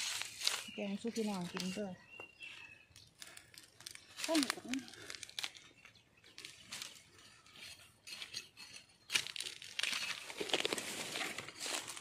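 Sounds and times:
bamboo cracking: 0:00.0 - 0:01.8, 0:03.0 - 0:07.1, 0:09.1 - 0:12.0
dry bamboo leaves rustling: 0:00.0 - 0:02.0, 0:03.2 - 0:05.7, 0:06.3 - 0:07.8, 0:09.1 - 0:12.0.

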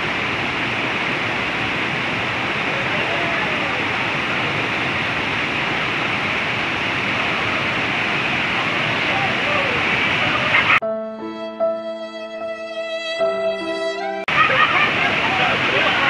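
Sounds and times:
whitewater rapids rushing: 0:00.0 - 0:10.8, 0:14.3 - 0:16.0.

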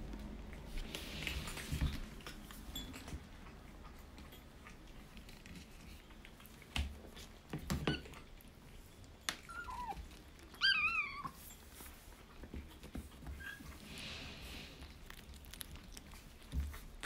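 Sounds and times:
kittens eating kibble from bowls: 0:00.0 - 0:17.0
kitten meowing: 0:10.6 - 0:11.4.

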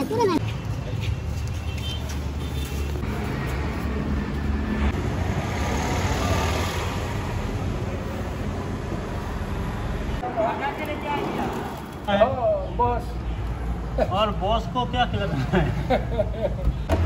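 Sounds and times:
traffic engine rumble: 0:00.0 - 0:17.0
vehicle passing: 0:03.0 - 0:12.0.

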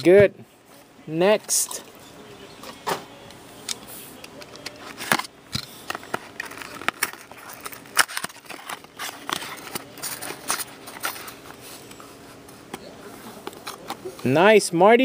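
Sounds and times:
plastic card holder scraping box: 0:04.4 - 0:11.6.

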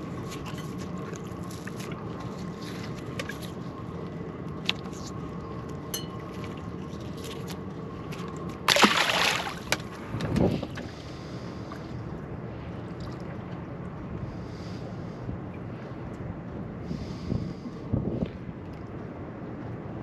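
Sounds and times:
steady low hum: 0:00.0 - 0:20.0
fish splashing into water: 0:08.6 - 0:09.9.

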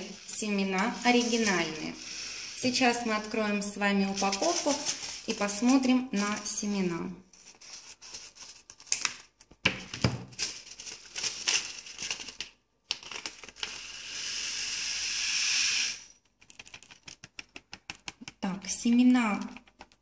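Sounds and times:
seeds pouring into glass dish: 0:00.0 - 0:05.6
foil packet crinkling: 0:03.1 - 0:06.5, 0:10.2 - 0:13.8.

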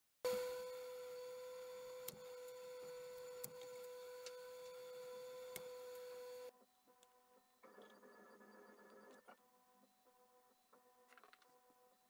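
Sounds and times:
idle printer humming: 0:00.3 - 0:06.5.

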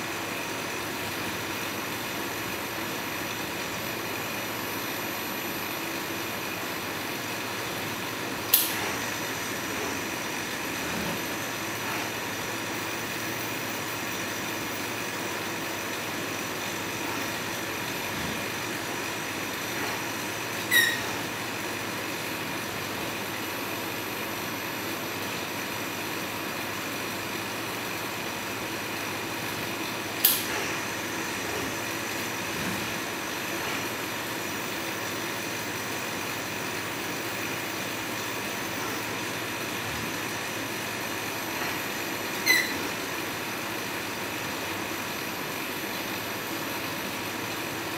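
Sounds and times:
sharp click: 0:08.5 - 0:08.8, 0:30.2 - 0:30.5
high squeak: 0:20.7 - 0:21.2, 0:42.4 - 0:42.9.

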